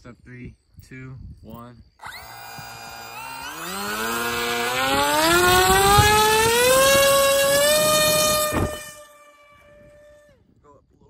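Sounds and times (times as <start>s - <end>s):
electric motor and propeller whine: 2.0s - 10.3s.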